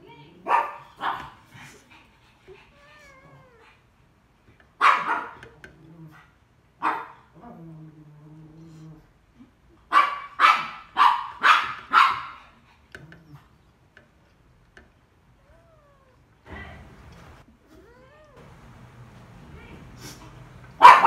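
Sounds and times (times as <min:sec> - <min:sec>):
dog barking: 0:00.4 - 0:01.4, 0:04.8 - 0:05.5, 0:06.8 - 0:07.3, 0:09.9 - 0:12.4, 0:20.8 - 0:21.0.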